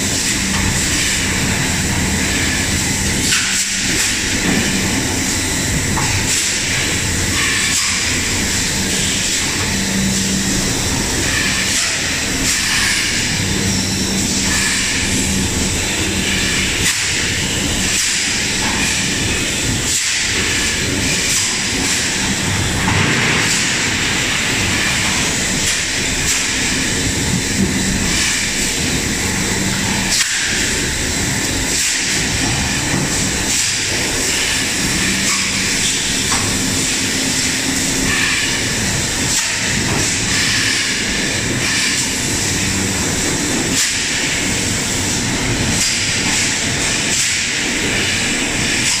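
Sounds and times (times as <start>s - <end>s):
packing line machinery din: 0.0s - 49.0s.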